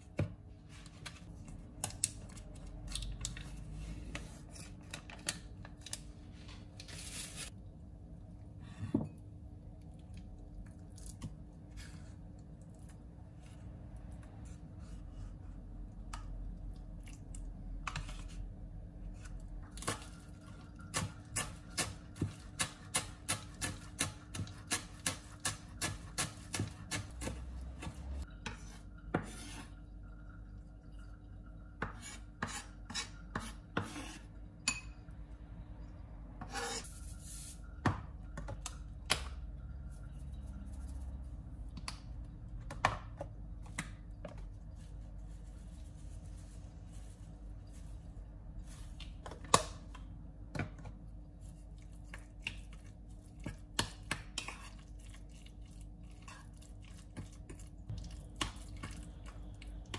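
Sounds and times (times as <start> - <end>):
knife blade scraping board: 36.4 - 36.9.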